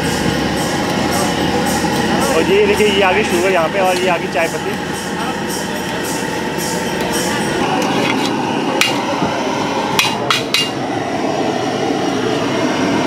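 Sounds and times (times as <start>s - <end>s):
metal ladle clanking on brass pot: 7.8s - 9.1s, 10.0s - 10.8s.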